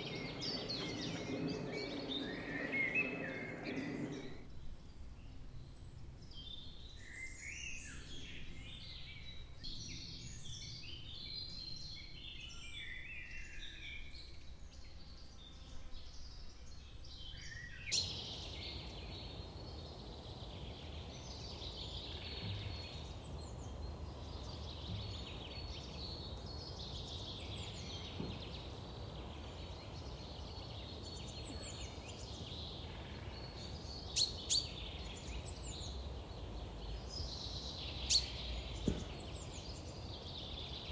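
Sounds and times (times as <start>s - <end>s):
birds chirping and singing: 0.0s - 4.7s, 16.6s - 40.9s
forest background noise: 0.0s - 40.9s.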